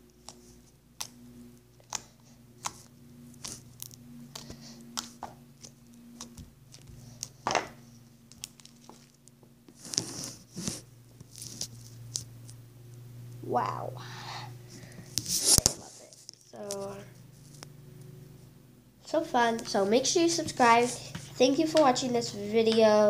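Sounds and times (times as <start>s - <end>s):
low steady hum: 0.0s - 23.0s
hand rustling near microphone: 2.0s - 12.3s.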